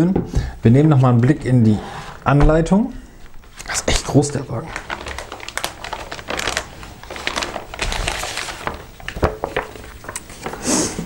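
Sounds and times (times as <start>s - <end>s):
plastic bag crinkling: 2.1s - 10.9s.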